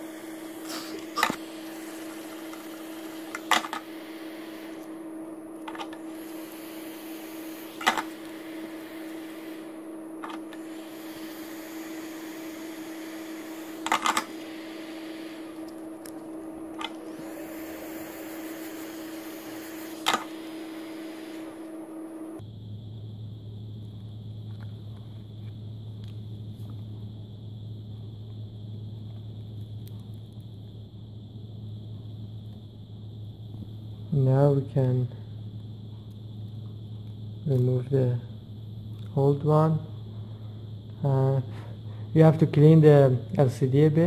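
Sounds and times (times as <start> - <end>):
hot-air blower humming: 0.0 - 44.0.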